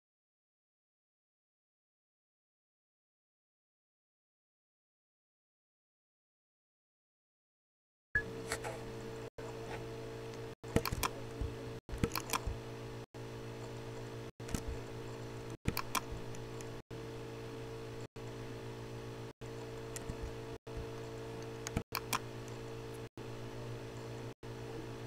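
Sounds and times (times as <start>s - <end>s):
steady electrical hum: 8.2s - 25.0s
computer mouse clicking: 10.3s - 11.2s, 11.9s - 12.6s, 14.4s - 16.8s, 19.6s - 20.4s, 21.0s - 23.1s.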